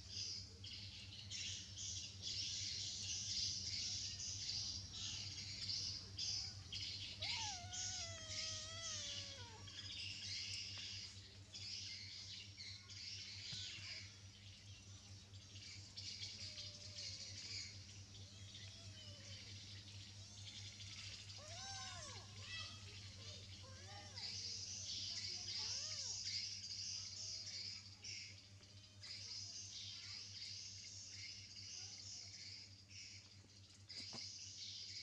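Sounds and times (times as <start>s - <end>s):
high chirping: 6.4s - 11.1s
kitten mewing: 7.2s - 9.7s.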